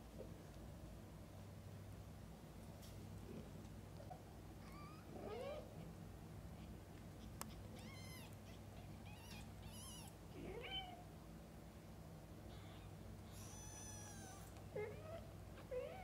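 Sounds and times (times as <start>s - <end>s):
kittens mewing: 7.2s - 11.0s, 12.5s - 16.0s.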